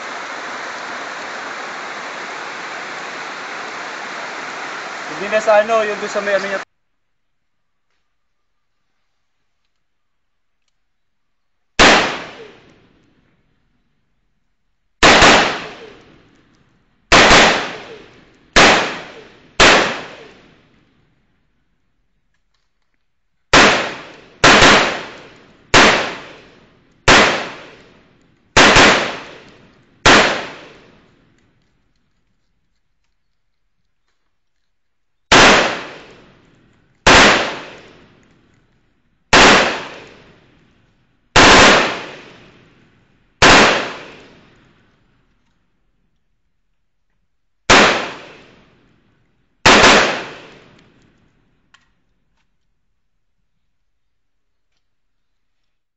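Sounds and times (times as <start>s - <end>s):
rifle shots: 11.8s - 12.8s, 15.0s - 16.2s, 17.1s - 20.6s, 23.5s - 28.0s, 28.6s - 31.1s, 35.3s - 38.2s, 39.3s - 40.4s, 41.4s - 42.7s, 43.4s - 44.6s, 47.7s - 48.7s, 49.6s - 50.9s.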